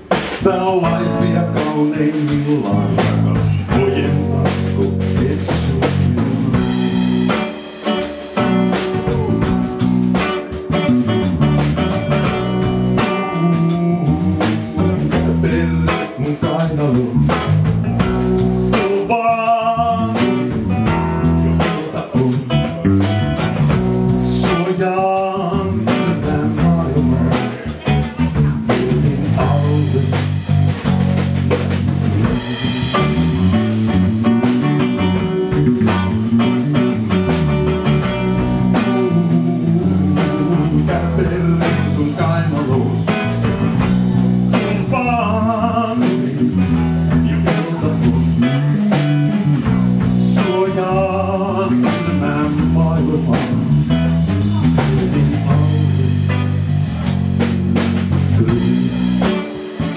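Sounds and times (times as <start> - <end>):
drum kit: 0.0 - 59.9
electric bass: 0.0 - 59.9
guitar: 0.0 - 59.9
man singing: 0.3 - 7.7, 8.6 - 9.8, 13.0 - 30.7, 32.4 - 56.3, 58.3 - 59.9.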